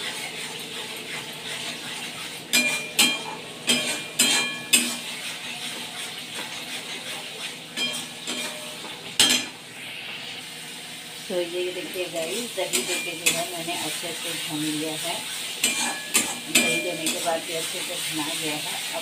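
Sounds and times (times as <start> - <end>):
masala sizzling in a wok: 0.0 - 19.0
spatula clinking against pan: 2.5 - 5.0, 7.8 - 9.6, 12.7 - 13.5, 15.6 - 17.3.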